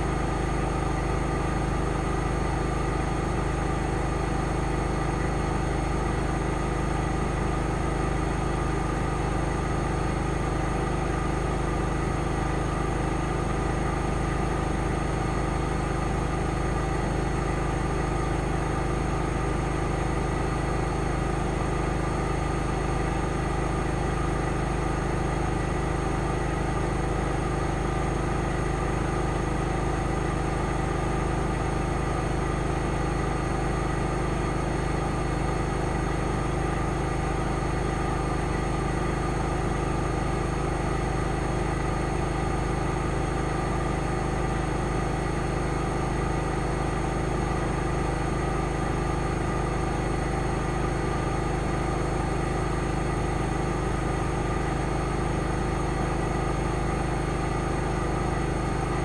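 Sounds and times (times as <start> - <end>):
washing machine spinning: 49.0 - 59.0.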